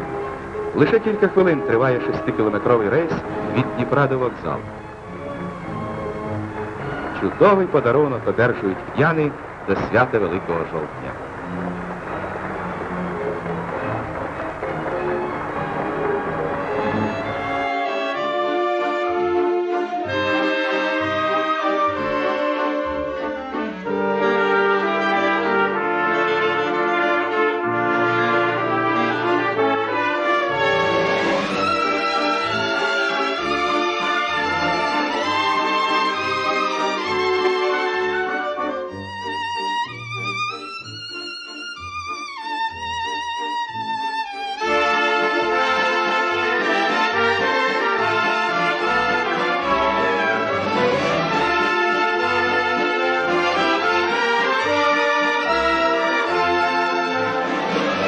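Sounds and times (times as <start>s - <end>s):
orchestral music with brass chords: 0.0s - 58.0s.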